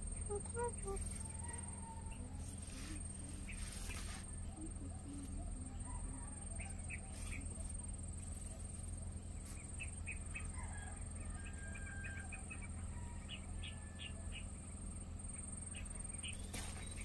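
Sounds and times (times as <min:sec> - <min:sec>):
small animals chirping: 0:00.0 - 0:10.4
low hum: 0:00.0 - 0:17.0.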